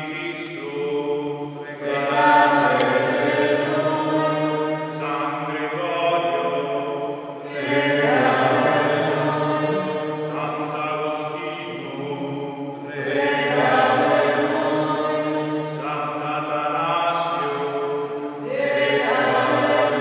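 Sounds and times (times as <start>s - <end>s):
man chanting: 0.0s - 4.0s, 4.8s - 18.4s.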